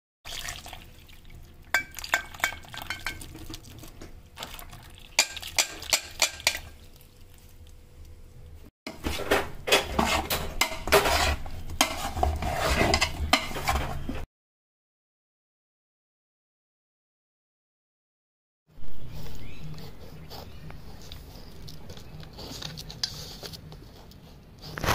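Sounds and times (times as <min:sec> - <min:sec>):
metal utensil scraping pot: 0:01.7 - 0:03.9, 0:05.1 - 0:07.0, 0:08.9 - 0:14.2.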